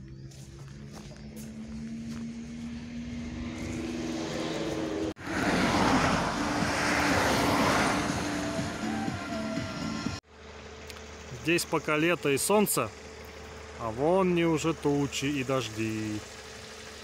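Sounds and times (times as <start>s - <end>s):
truck driving past: 0.0s - 10.9s.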